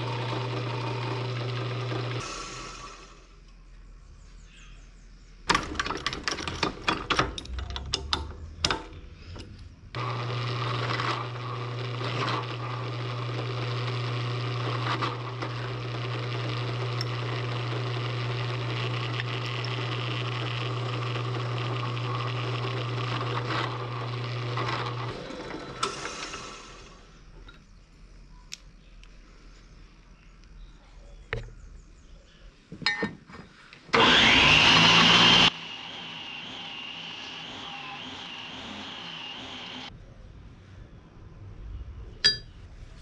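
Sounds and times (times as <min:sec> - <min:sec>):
drill press motor running: 0:00.0 - 0:03.3, 0:10.0 - 0:27.0, 0:33.9 - 0:39.9.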